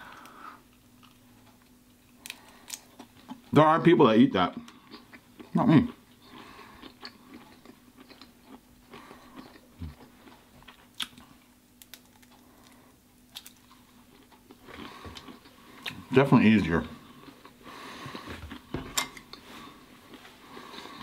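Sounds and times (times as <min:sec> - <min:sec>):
low steady hum: 0:00.0 - 0:21.0
biting and chewing shrimp: 0:00.2 - 0:03.6, 0:04.6 - 0:16.1.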